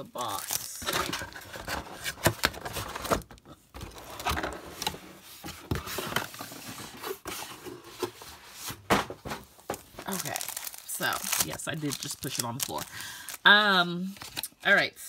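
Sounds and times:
packaging rustling: 0:00.0 - 0:14.6
box falling onto the floor: 0:08.8 - 0:09.9.

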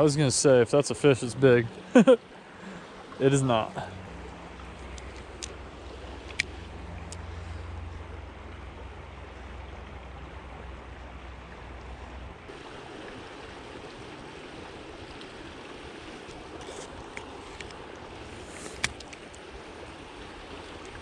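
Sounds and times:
river water rushing: 0:00.0 - 0:21.0.

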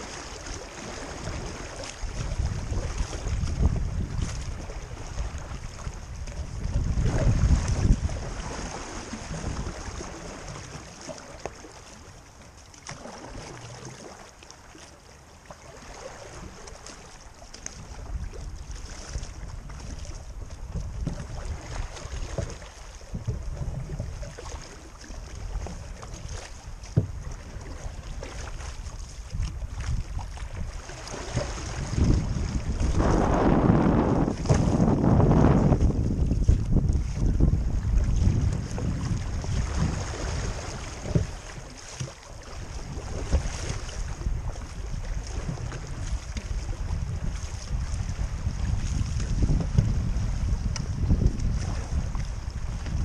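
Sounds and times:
wind buffeting microphone: 0:00.0 - 0:10.8, 0:17.7 - 0:53.0
water swishing around canoe: 0:00.0 - 0:53.0
canoe knocks: 0:20.6 - 0:24.6, 0:25.2 - 0:32.2, 0:40.8 - 0:46.6.

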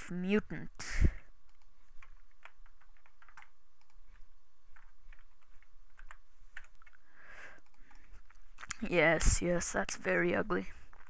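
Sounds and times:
steady low hum: 0:00.0 - 0:11.0
computer keyboard clicks: 0:01.5 - 0:07.0, 0:07.6 - 0:08.4.

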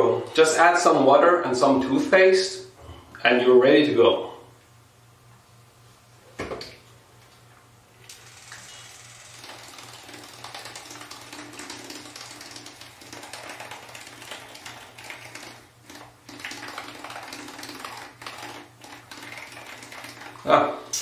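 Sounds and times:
electric toothbrush buzzing: 0:08.0 - 0:21.0.

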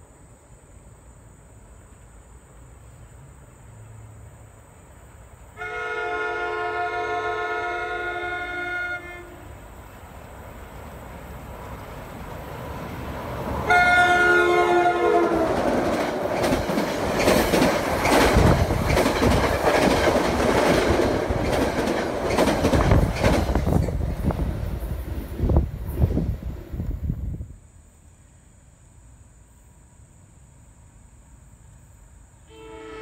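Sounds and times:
train rumble: 0:00.0 - 0:27.9
train air horn: 0:05.6 - 0:09.6, 0:13.6 - 0:15.6, 0:32.4 - 0:33.0
wheels clattering on rails: 0:15.2 - 0:25.2.

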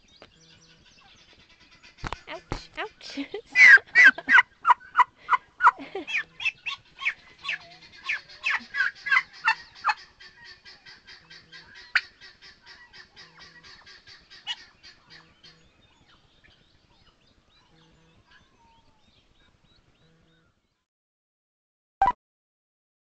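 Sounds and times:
turkey calling: 0:03.6 - 0:15.5.

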